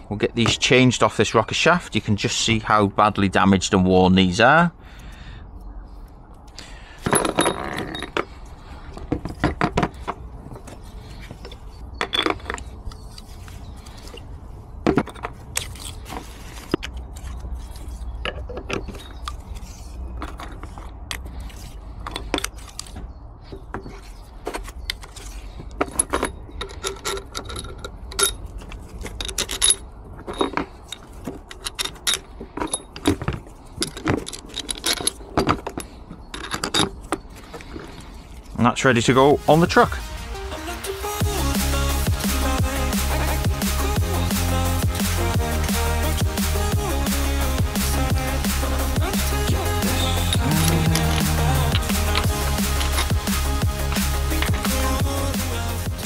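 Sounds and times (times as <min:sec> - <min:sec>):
metal rocker arms clinking: 0:07.0 - 0:08.4, 0:16.8 - 0:38.0, 0:49.7 - 0:54.8.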